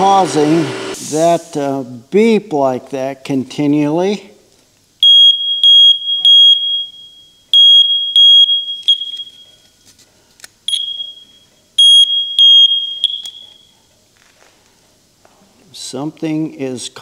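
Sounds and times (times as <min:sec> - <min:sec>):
smoke detector beeping: 0:05.0 - 0:09.8, 0:10.7 - 0:13.8.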